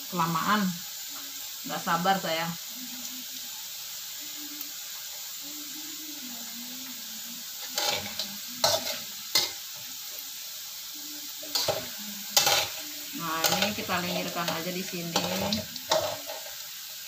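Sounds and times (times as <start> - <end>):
potatoes sizzling in hot oil: 0.0 - 17.0
spatula scraping a wok: 7.6 - 10.2, 11.4 - 16.6.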